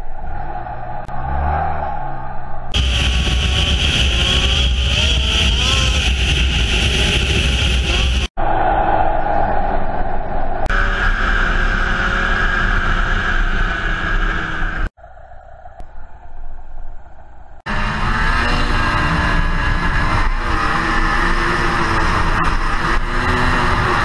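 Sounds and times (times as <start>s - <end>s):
wind rush: 2.2s - 11.2s
snowmobile engine running: 2.7s - 8.3s, 10.7s - 14.9s, 17.7s - 24.0s.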